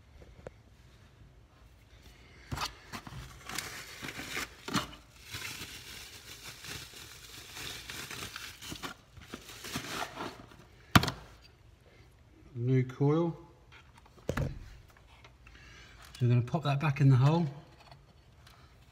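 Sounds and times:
plastic wrapping crinkling: 3.0 - 10.6.

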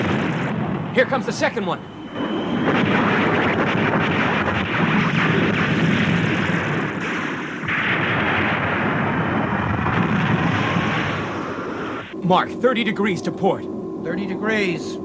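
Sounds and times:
missiles exploding: 0.0 - 12.2
cartoon gun turrets firing: 2.7 - 11.4.

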